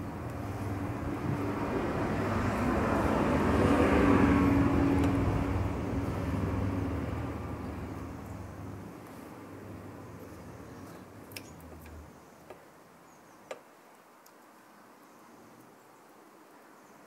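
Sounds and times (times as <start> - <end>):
vehicle engine passing by: 0.0 - 12.2.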